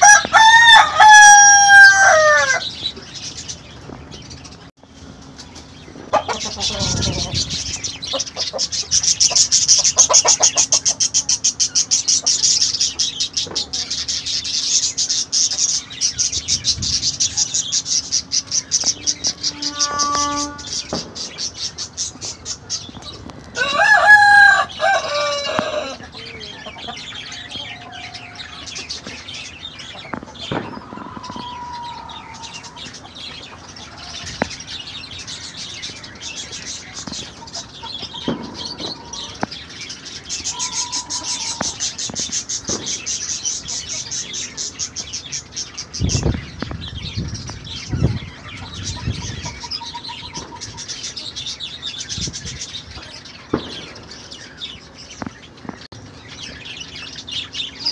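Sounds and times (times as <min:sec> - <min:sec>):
rooster crowing: 0:00.0 - 0:02.8, 0:23.6 - 0:26.7, 0:30.8 - 0:32.9, 0:40.5 - 0:41.8
small birds chirping: 0:00.0 - 0:57.9.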